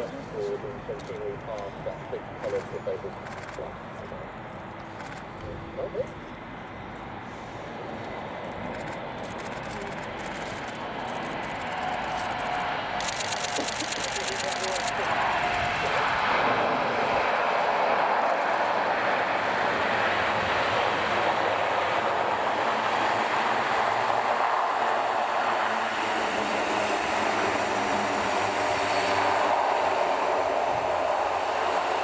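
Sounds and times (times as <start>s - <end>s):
turboprop engines droning: 0.0s - 32.0s.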